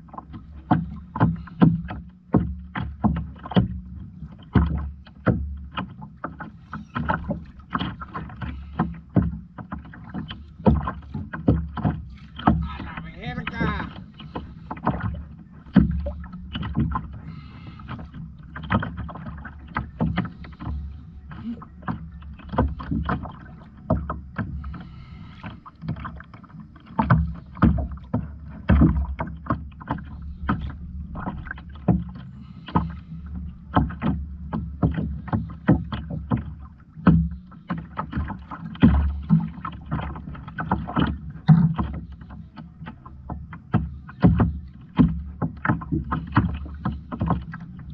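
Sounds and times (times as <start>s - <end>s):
water slapping against hull: 0.0s - 47.9s
steady low rumble: 12.6s - 14.7s.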